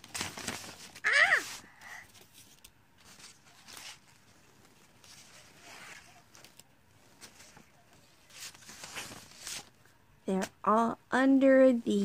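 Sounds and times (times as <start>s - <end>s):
paper rustling: 0.0s - 9.8s
child's high vocal sound: 1.0s - 2.0s.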